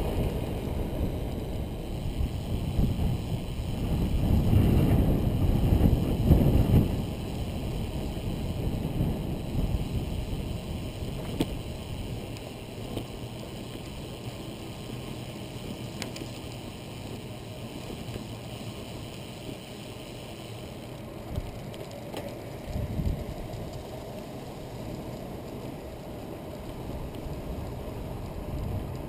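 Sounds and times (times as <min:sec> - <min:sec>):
wind noise on microphone: 0:00.0 - 0:13.1, 0:22.7 - 0:23.8, 0:26.8 - 0:29.0
faint clicks: 0:12.3 - 0:14.3, 0:15.9 - 0:17.2, 0:17.9 - 0:29.0.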